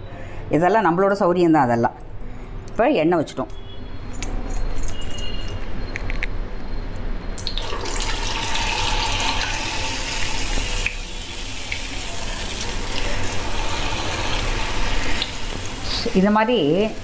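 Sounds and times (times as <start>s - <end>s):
oil sizzling while deep-frying: 7.4s - 17.0s.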